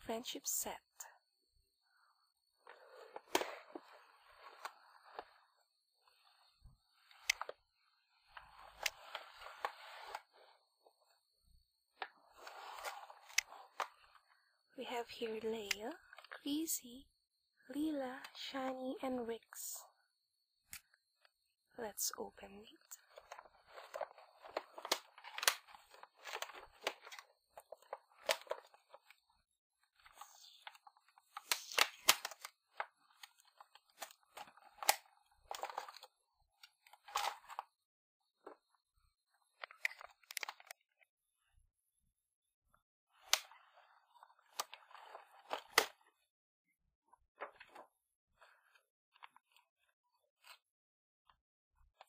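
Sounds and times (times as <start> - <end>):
plastic packaging crinkling: 23.0 - 29.0
packaging snapping: 23.1 - 29.0, 30.2 - 36.0.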